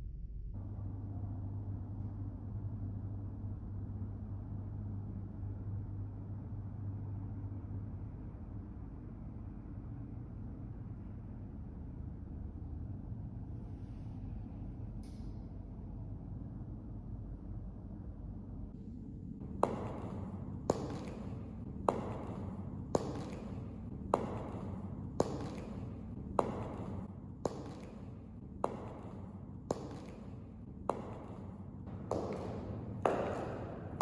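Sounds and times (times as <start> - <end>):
low steady hum: 0.0 - 34.0
high heels clicking on stone floor: 19.6 - 34.0.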